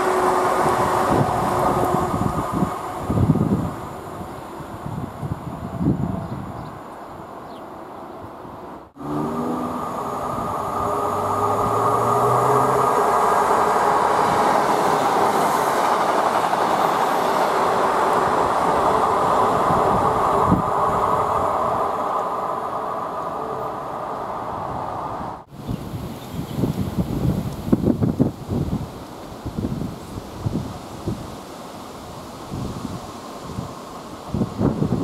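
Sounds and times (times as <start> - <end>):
diesel train passing: 0.0 - 25.6.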